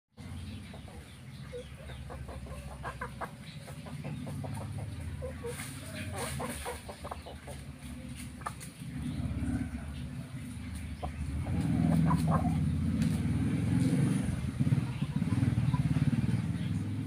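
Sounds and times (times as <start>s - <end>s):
chickens clucking: 0.2s - 17.0s.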